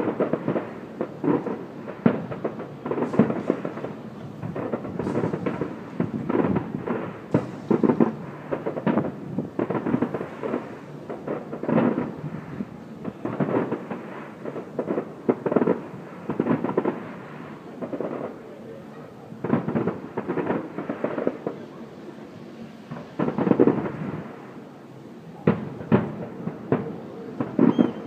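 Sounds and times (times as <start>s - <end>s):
distant fireworks bursting: 0.0s - 28.0s.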